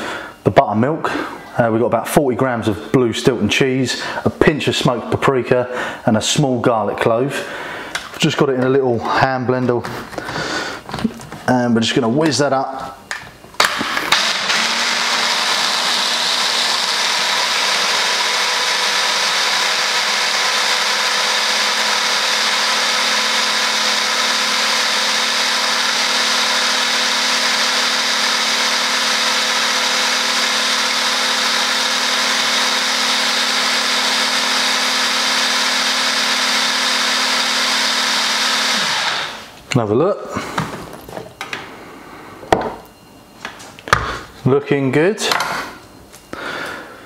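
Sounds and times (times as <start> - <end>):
hand blender motor whine: 13.6 - 39.6.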